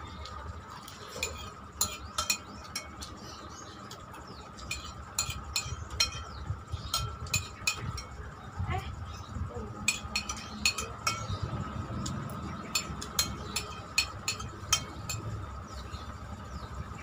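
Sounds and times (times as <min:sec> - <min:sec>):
spoon clinking on ceramic plate: 0:01.1 - 0:03.1, 0:04.7 - 0:08.2, 0:09.9 - 0:11.4, 0:12.7 - 0:15.4.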